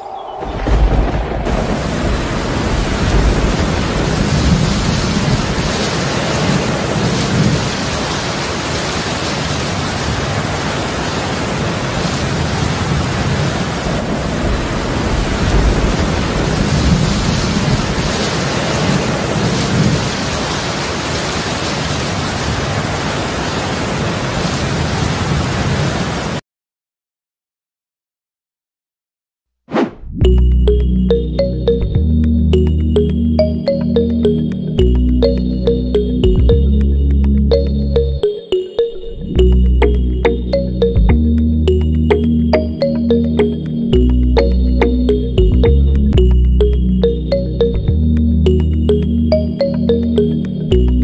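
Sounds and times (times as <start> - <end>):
thunder rumbling: 0.0 - 23.0
heavy rain falling: 0.0 - 26.4.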